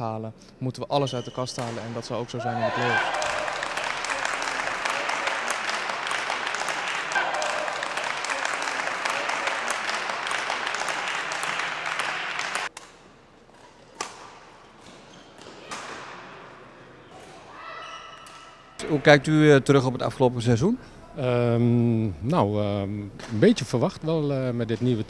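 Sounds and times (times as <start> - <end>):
crowd voices: 1.6 - 12.7.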